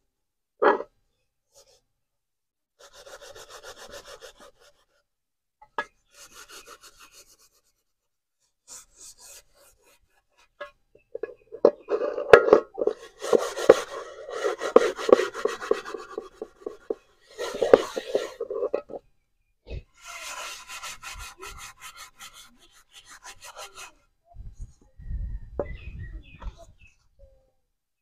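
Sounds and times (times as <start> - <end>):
scrubbing a metal pot: 2.8 - 4.9, 6.1 - 7.7, 8.7 - 19.0, 20.0 - 24.0.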